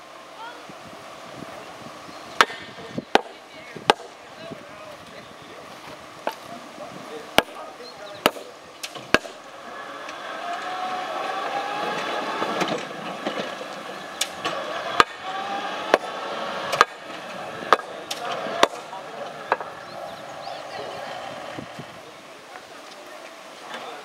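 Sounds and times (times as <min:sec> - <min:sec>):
wheels clicking over rail joints: 0:07.3 - 0:24.0
electric locomotive whine: 0:09.4 - 0:24.0.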